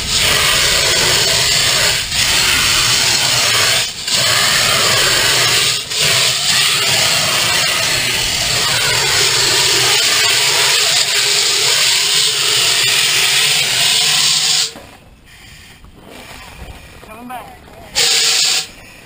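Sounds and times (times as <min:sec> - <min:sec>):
fire extinguisher hissing: 0:00.0 - 0:14.8, 0:18.0 - 0:18.8.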